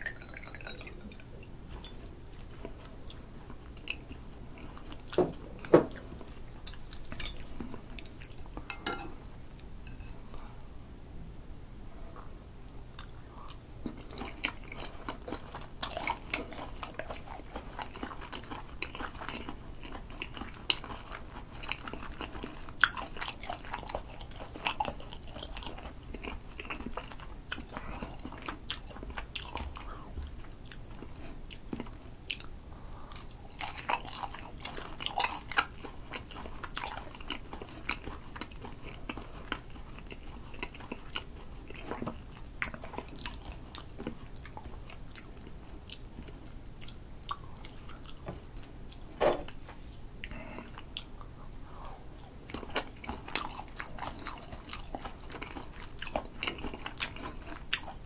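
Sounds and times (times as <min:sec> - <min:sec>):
close chewing with mouth clicks: 0:12.9 - 0:49.6, 0:50.2 - 0:58.0.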